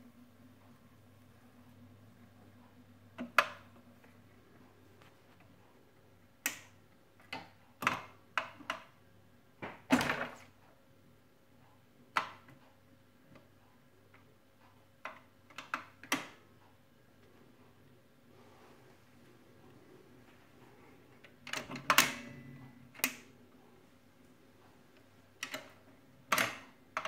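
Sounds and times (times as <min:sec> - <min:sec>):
faint motor hum: 0:00.0 - 0:09.6, 0:16.3 - 0:27.0
record changer clicks and clunks: 0:21.1 - 0:23.4, 0:24.9 - 0:27.0.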